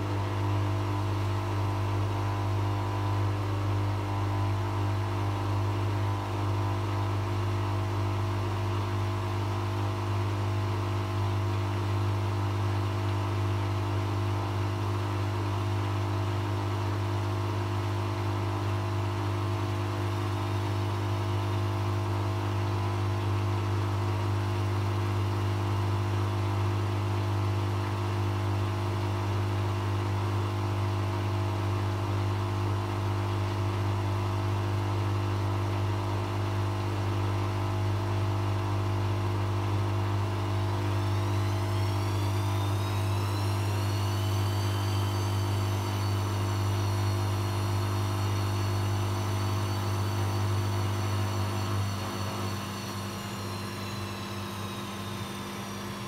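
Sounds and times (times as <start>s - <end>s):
washing machine spinning: 38.0s - 56.0s
high whine rising in pitch: 40.2s - 56.0s.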